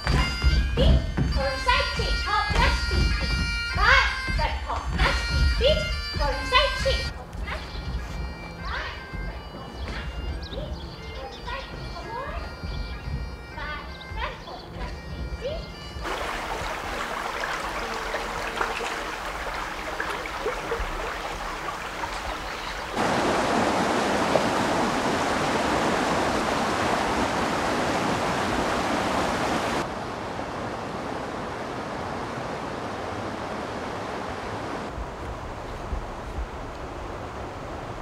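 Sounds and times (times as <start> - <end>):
stream flowing over stones: 16.0 - 34.9
white water rushing: 16.0 - 38.0.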